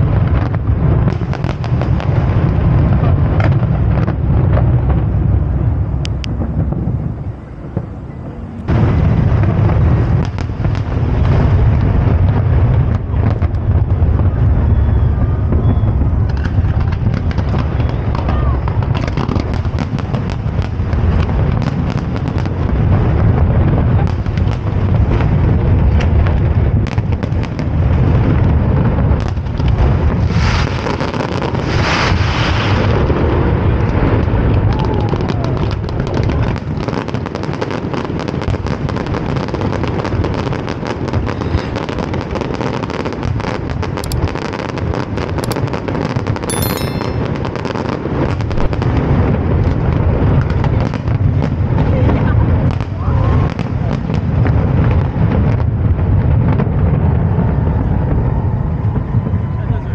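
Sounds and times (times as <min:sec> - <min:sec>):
deep rumble: 0:00.0 - 0:30.7
fireworks crackling: 0:00.0 - 0:59.1
firework shell bursts and cracks: 0:44.0 - 0:44.3, 0:45.4 - 0:45.7, 0:46.5 - 0:47.6.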